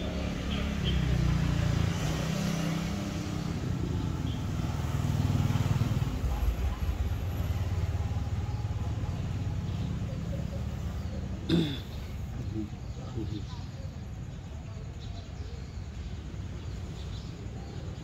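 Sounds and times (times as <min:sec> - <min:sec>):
vehicle engine running: 0:00.0 - 0:13.9.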